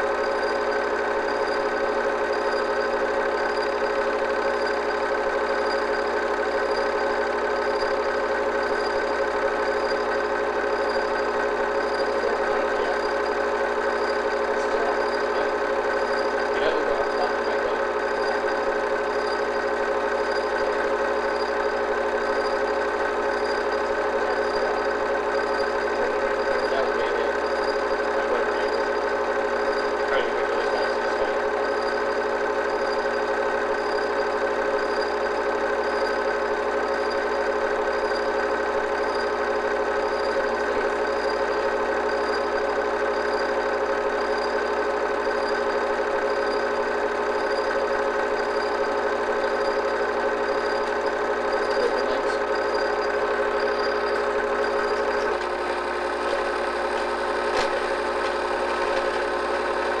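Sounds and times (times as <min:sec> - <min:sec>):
film projector whirring: 0:00.0 - 1:00.0.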